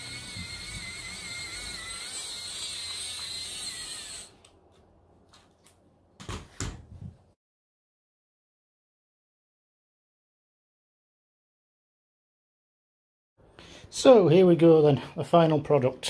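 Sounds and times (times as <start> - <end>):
toy electric motor whirring: 0.0 - 4.4.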